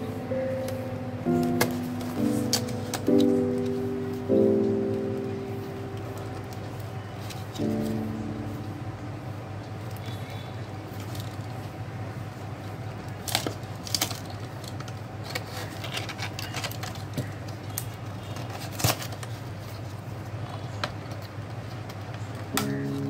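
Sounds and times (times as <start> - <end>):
steady low hum: 0.0 - 15.2
cardboard crackling: 1.3 - 8.5, 12.8 - 23.0.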